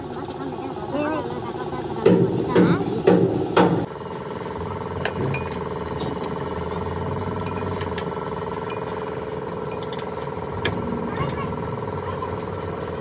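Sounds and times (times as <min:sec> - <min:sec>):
machine humming: 0:03.8 - 0:13.0.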